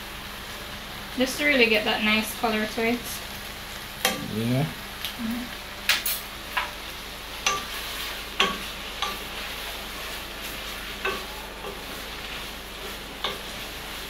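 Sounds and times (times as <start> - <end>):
lobster sizzling in butter: 0.0 - 14.0
wooden spoon scraping a pan: 7.4 - 14.0.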